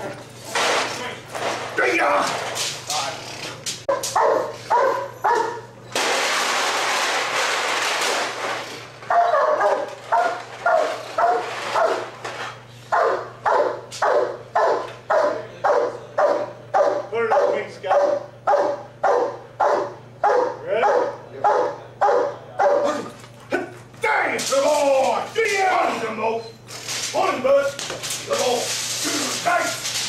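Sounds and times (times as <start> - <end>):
dog barking: 3.9 - 5.7, 9.1 - 12.1, 12.9 - 23.1.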